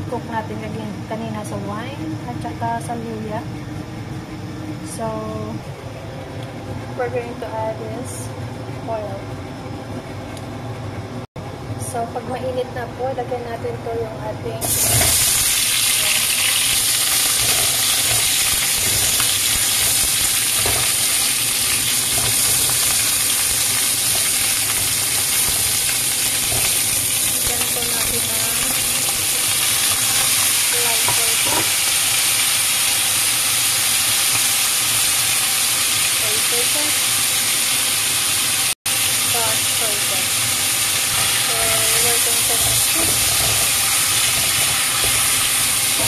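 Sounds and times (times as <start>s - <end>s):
meat sizzling in hot oil: 14.6s - 46.0s.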